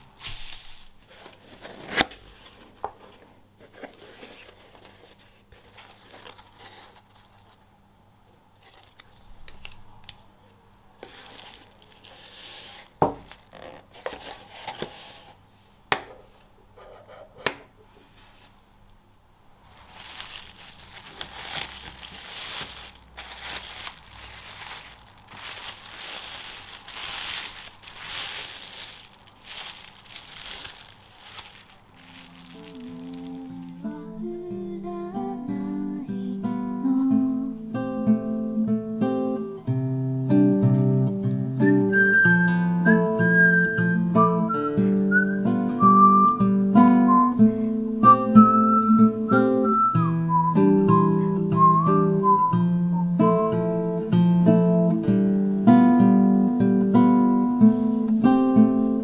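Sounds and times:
tissue paper crinkling: 0.0s - 7.6s, 8.6s - 9.8s, 11.0s - 15.4s, 19.6s - 34.2s.

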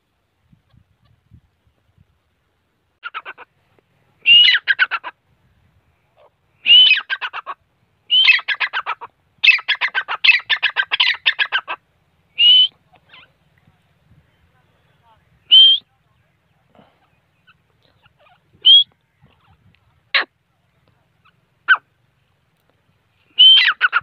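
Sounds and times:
bird calling shrill notes: 4.2s - 5.0s, 6.6s - 7.4s, 8.1s - 13.3s, 15.4s - 15.9s, 17.4s - 19.6s, 23.3s - 24.0s.

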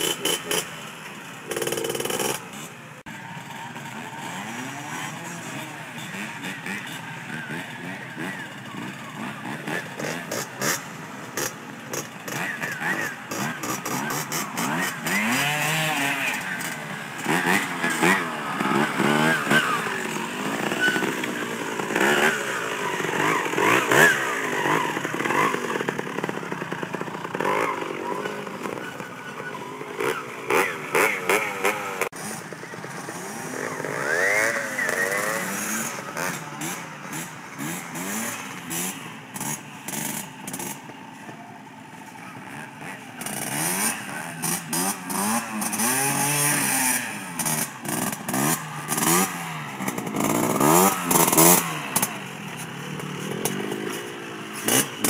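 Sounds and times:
motorcycle engines revving: 0.0s - 55.0s.

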